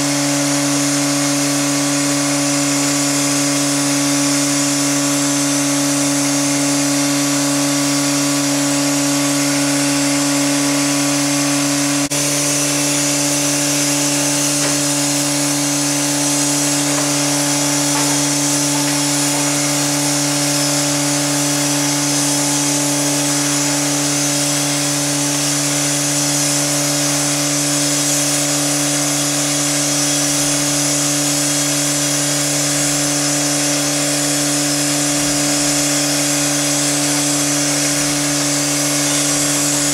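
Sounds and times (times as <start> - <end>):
steam locomotive hissing: 2.6 - 39.9
low drone: 8.4 - 28.0.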